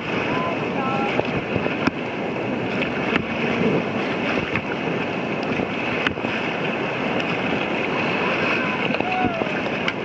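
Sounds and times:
whitewater rapids rushing: 0.0s - 10.0s
wind buffeting microphone: 0.0s - 10.0s.

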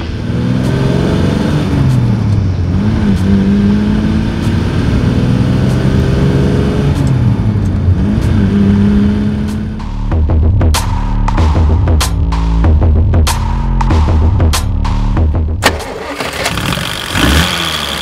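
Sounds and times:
car engine from inside cabin: 0.0s - 9.9s.

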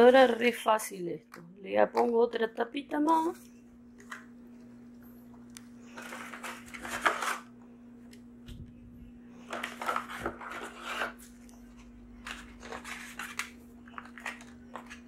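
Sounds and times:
aluminium foil pan crinkling: 5.9s - 7.5s, 9.5s - 11.4s, 12.2s - 15.0s.

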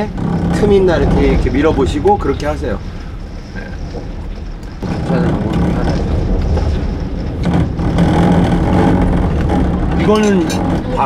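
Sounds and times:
low droning hum: 0.0s - 11.0s
strong wind rumbling: 0.0s - 11.0s
window vibrating: 0.0s - 11.0s.

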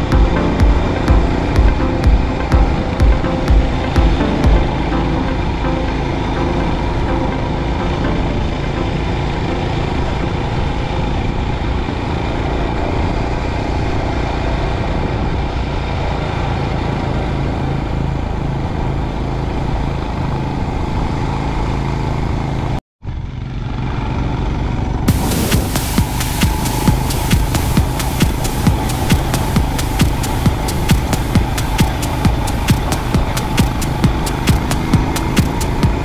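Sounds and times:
motorcycle engine running: 0.0s - 5.0s, 9.6s - 36.0s
wind rush over microphone: 25.1s - 36.0s.

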